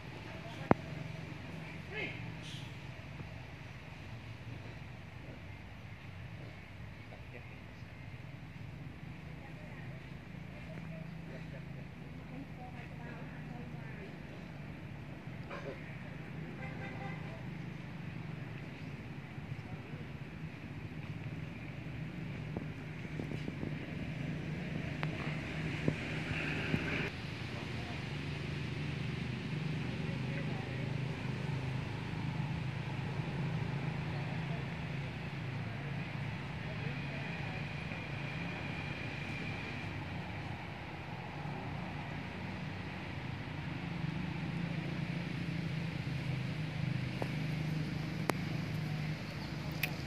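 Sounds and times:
low engine drone: 0.0 - 50.0
wind noise on microphone: 22.3 - 27.1
faint clicks: 48.2 - 50.0.

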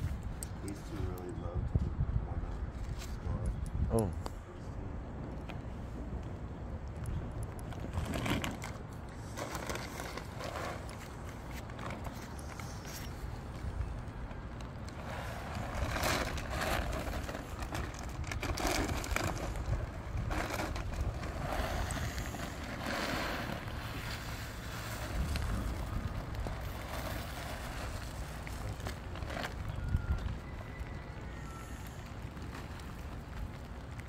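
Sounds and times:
plastic bag crinkling: 7.8 - 34.0.

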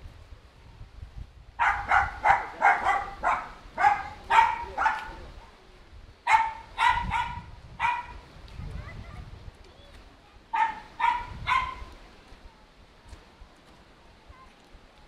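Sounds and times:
dog barking: 1.6 - 5.2, 6.3 - 8.2, 10.5 - 11.9.

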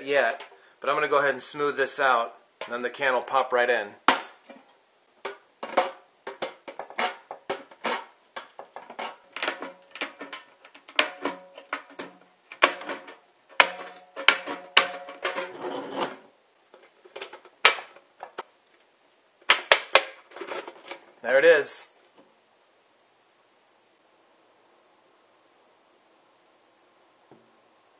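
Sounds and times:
can body ringing: 5.3 - 15.4
metal snips cutting tin: 5.6 - 16.2.

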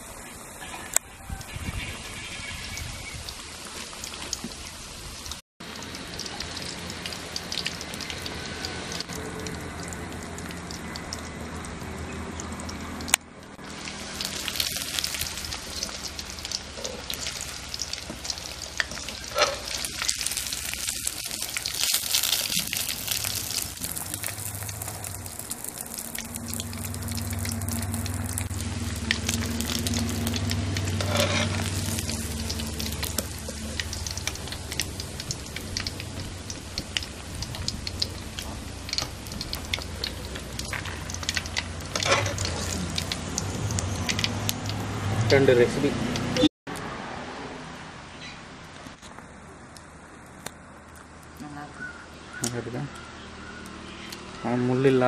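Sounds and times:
fish deep-frying in oil: 0.0 - 46.5.

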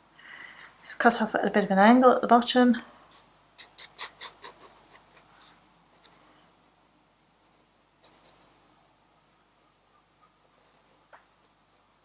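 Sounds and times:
pencil scratching on paper: 3.6 - 5.3, 7.5 - 8.5.

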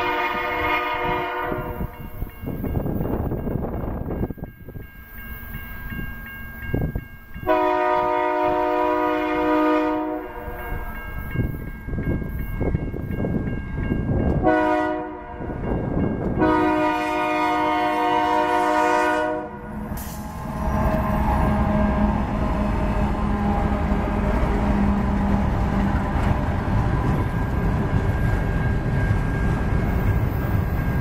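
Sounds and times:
locomotive air horn blasts: 0.0 - 1.9, 7.4 - 10.8, 14.4 - 15.5, 16.4 - 25.0
crossing bell ringing: 0.0 - 23.0, 26.8 - 31.0
train rumble: 0.0 - 31.0.

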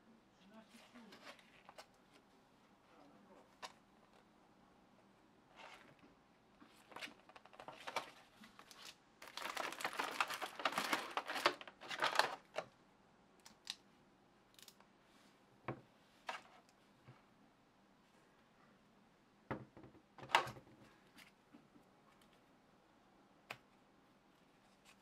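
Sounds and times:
paper and plastic rustling: 0.7 - 2.2, 6.6 - 12.7.

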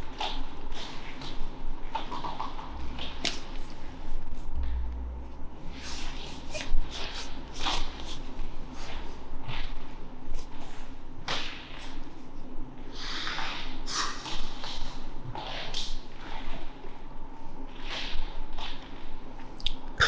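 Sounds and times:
wet lip and tongue smacks: 19.6 - 19.8.

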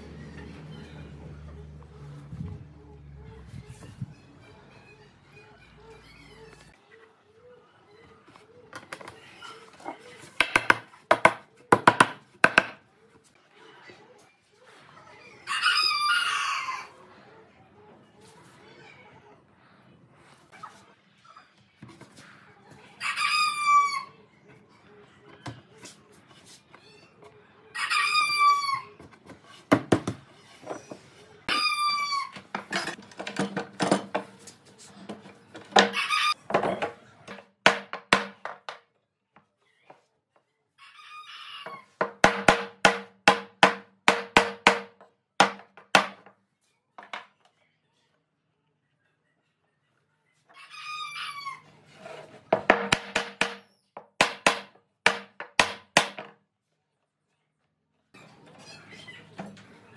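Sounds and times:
rooster crowing: 15.4 - 17.0, 27.7 - 28.9, 35.8 - 36.4.

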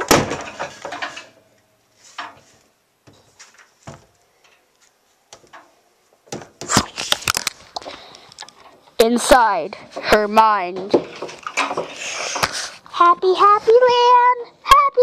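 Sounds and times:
door clicking and knocking shut: 0.0 - 1.1
soft knocks and rustles: 2.0 - 6.8.

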